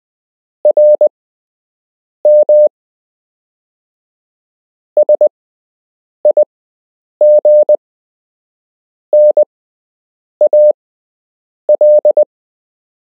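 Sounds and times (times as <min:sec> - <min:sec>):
morse code beeps: 0:00.7 - 0:01.1, 0:02.3 - 0:02.7, 0:05.0 - 0:05.3, 0:07.2 - 0:07.8, 0:09.2 - 0:09.5, 0:10.4 - 0:10.8, 0:11.7 - 0:12.3.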